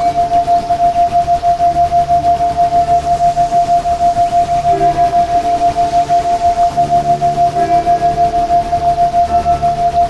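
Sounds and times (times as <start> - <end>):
pulsing electronic tone: 0.0 - 10.0
soft held ambient tones: 0.0 - 10.0.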